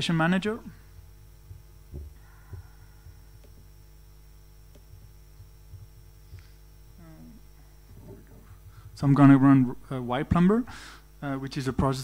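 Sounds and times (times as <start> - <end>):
soft low thumps: 0.0 - 10.5
electrical hum: 0.0 - 12.0.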